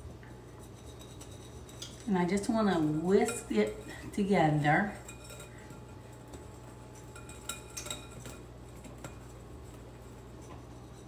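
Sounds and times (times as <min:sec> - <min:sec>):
whisk stirring powder in bowl: 0:00.0 - 0:11.0
whisk clinking against glass: 0:00.6 - 0:09.4.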